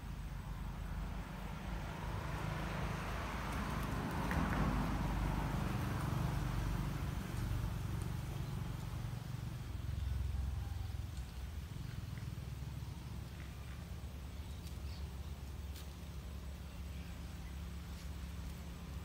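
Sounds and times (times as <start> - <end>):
vehicle passing: 0.0 - 14.4.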